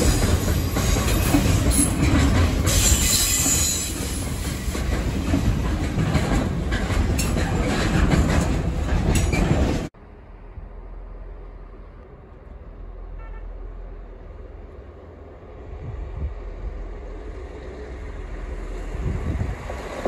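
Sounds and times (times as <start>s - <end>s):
wheels clicking over rail joints: 0.0s - 9.9s
train wheels on rails: 0.0s - 10.0s, 13.9s - 20.0s.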